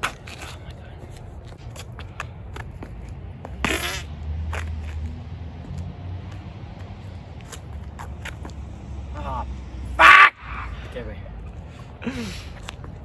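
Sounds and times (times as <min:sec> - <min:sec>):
shoes scuffing on gritty pavement: 0:00.0 - 0:08.9, 0:12.5 - 0:13.0.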